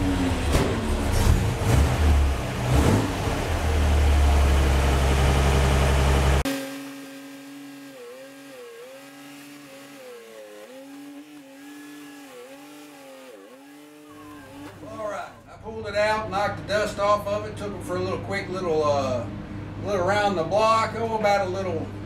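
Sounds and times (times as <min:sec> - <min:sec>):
truck engine running loudly: 0:00.0 - 0:15.2.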